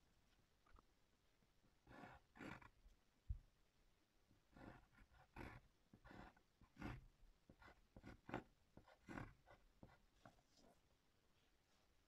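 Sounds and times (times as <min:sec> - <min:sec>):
pencil scratching on paper: 0:01.8 - 0:02.8, 0:04.5 - 0:10.8.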